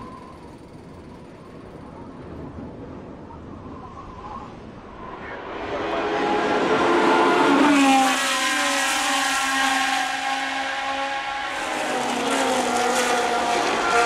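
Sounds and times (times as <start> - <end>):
racing car engine passing: 5.0 - 14.0.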